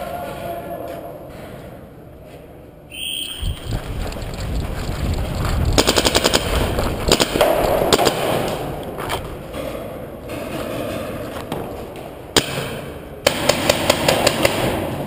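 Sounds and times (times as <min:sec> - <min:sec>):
paintball markers firing in a cave: 0:03.5 - 0:08.9, 0:12.4 - 0:15.0.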